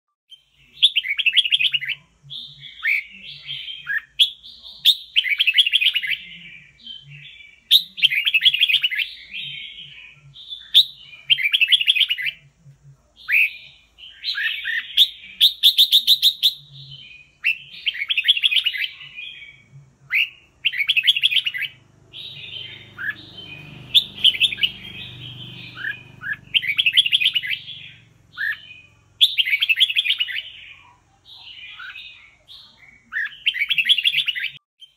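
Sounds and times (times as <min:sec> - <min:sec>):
bulbul singing warbled phrases: 0:00.3 - 0:34.9.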